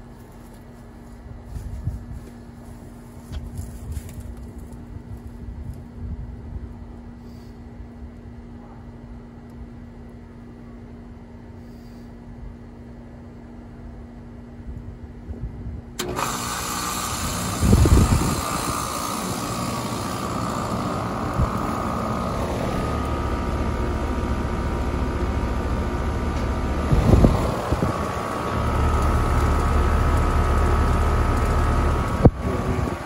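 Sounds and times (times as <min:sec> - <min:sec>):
heat pump rushing and whining: 0:15.9 - 0:33.0.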